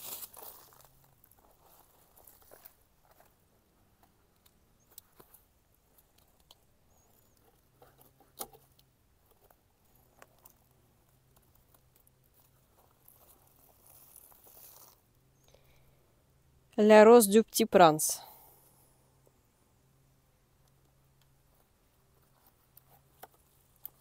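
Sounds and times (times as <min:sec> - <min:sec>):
faint rustling of packaging: 0:00.0 - 0:15.9.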